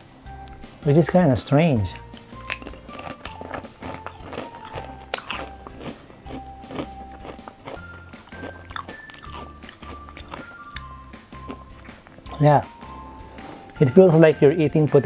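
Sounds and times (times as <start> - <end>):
soft background music: 0.0 - 15.0
potato chip crunching: 1.9 - 11.6.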